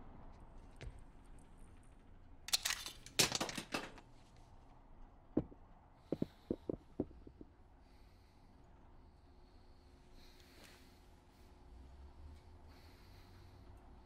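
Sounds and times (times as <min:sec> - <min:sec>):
sharp cracks: 0:02.4 - 0:04.1
shell casing bouncing on rubber mat: 0:05.4 - 0:07.5.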